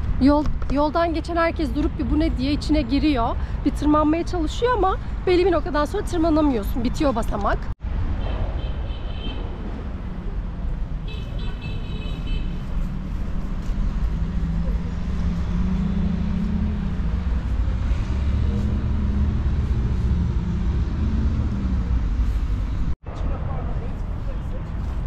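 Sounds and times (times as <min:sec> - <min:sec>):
rumble of passing vehicles: 0:00.0 - 0:25.0
vehicle engine humming: 0:09.5 - 0:23.0.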